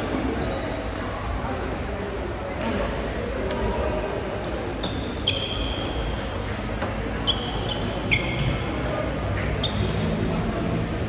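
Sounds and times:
background murmur: 0.0 - 11.0
shoes squeaking on court: 4.8 - 6.0, 6.8 - 10.4.

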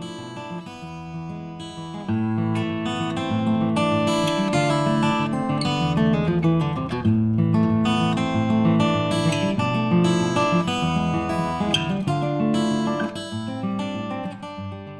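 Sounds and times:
acoustic guitar strumming: 0.0 - 14.9.

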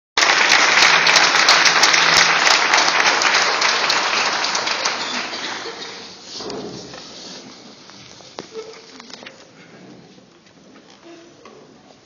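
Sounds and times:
audience applauding: 0.2 - 6.2.

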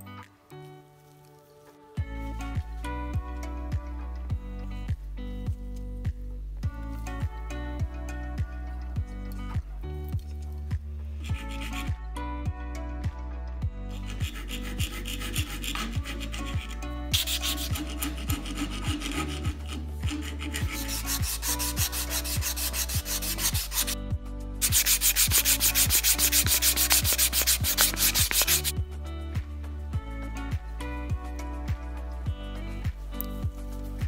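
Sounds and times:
background music with steady beat: 0.0 - 34.0
sanding sponge rubbing on metal tube: 11.2 - 11.9, 13.9 - 24.0, 24.6 - 28.7.

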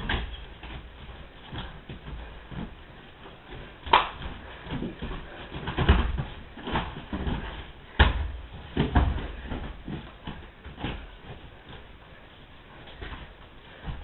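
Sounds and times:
wrestlers grappling on a mat: 0.0 - 14.0
sharp slaps: 3.8 - 4.3
heavy thud on mat: 3.8 - 11.2.

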